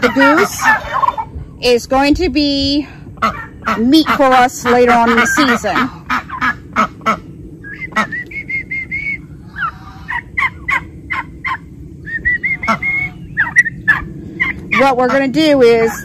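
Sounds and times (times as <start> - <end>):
high chick peeps: 12.2 - 15.2.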